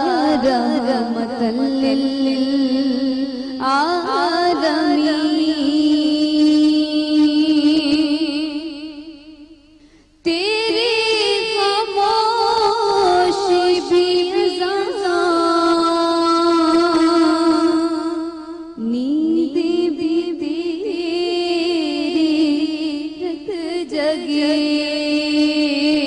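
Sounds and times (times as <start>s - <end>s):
woman singing: 0.0s - 9.6s, 10.2s - 26.0s.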